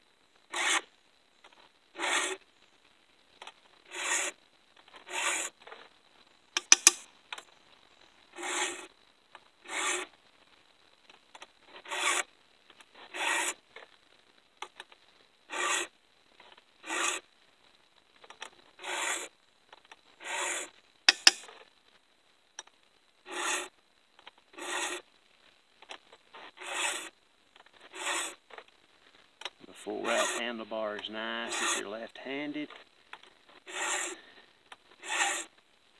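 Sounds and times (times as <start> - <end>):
file rasping on chainsaw chain: 6.6 - 7.0, 20.2 - 21.4, 24.6 - 25.0, 26.6 - 27.1, 28.0 - 28.4, 30.1 - 30.4, 31.4 - 31.8, 33.7 - 34.2, 35.0 - 35.5
sharp metallic click: 6.6 - 7.0, 21.1 - 21.4.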